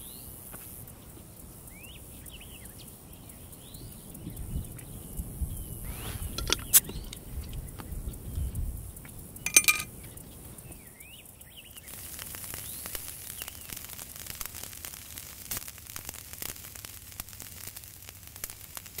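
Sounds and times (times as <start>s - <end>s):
charcoal embers crackling and hissing: 0.0s - 19.0s
ringing clink: 9.5s - 9.9s.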